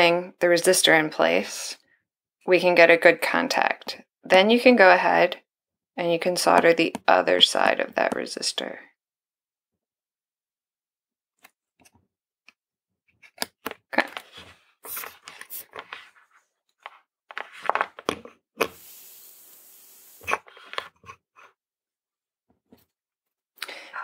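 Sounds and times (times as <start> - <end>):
paper packaging rustling: 17.3 - 18.1
steady hiss: 18.7 - 20.4.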